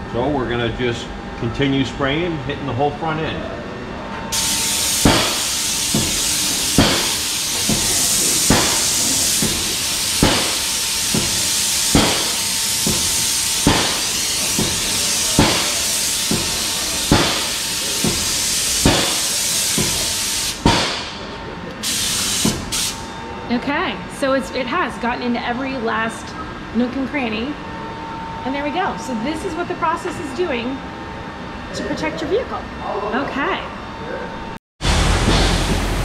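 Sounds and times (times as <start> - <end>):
spray gun hissing: 4.4 - 20.6, 21.8 - 23.1.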